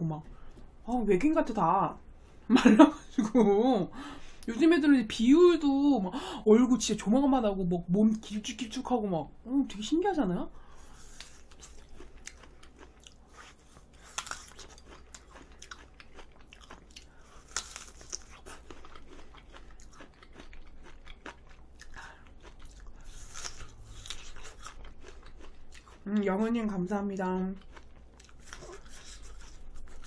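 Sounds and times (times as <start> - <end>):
apple being bitten and chewed: 10.8 - 26.0, 27.7 - 30.0.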